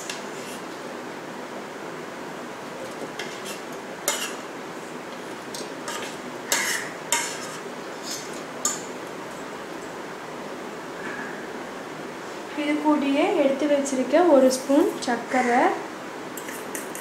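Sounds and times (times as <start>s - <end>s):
fork scraping plate: 2.8s - 4.4s, 5.1s - 8.9s, 16.4s - 17.0s.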